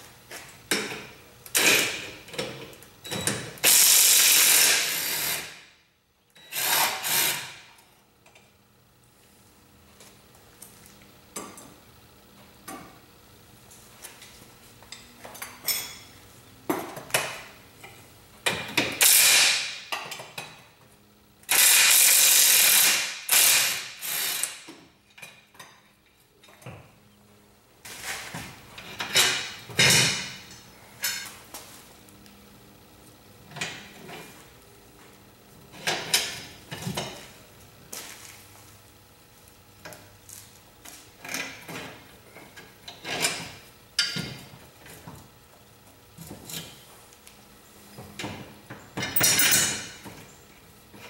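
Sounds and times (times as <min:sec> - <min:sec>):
ratchet wrench ratcheting: 0:03.6 - 0:05.6, 0:19.0 - 0:19.7, 0:21.5 - 0:24.7.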